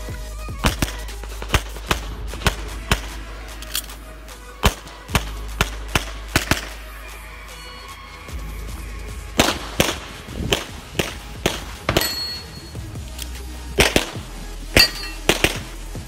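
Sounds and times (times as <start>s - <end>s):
pistol gunshots: 0.6s - 7.2s, 9.4s - 12.8s, 13.7s - 15.9s.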